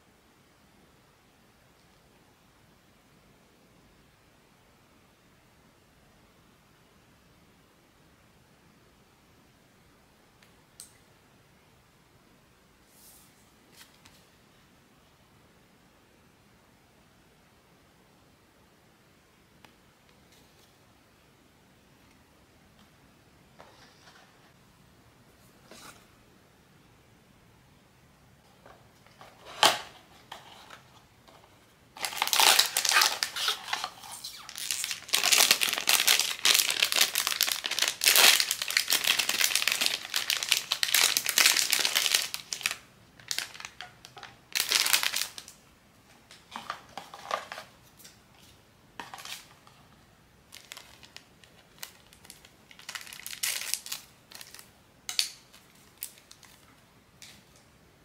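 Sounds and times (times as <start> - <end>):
packaging crinkling and crumpling: 32.0 - 45.6, 49.0 - 49.7, 50.5 - 54.7, 55.5 - 57.4.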